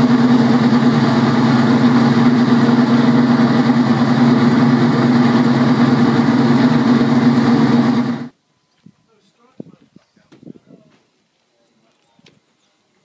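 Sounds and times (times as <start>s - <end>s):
racing car engine idling: 0.0s - 8.3s.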